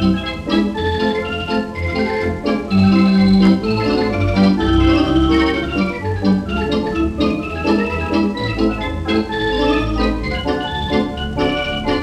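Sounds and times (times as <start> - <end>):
theatre organ playing lively tune: 0.0 - 12.0.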